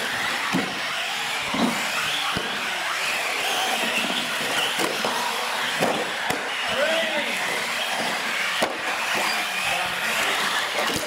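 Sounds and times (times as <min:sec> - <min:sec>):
small motors whining: 0:00.0 - 0:11.0
tyre noise on concrete: 0:00.0 - 0:11.0.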